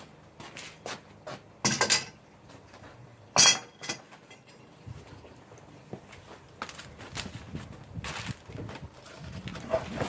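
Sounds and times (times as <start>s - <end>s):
steel traps and chain clanking: 3.3s - 4.8s.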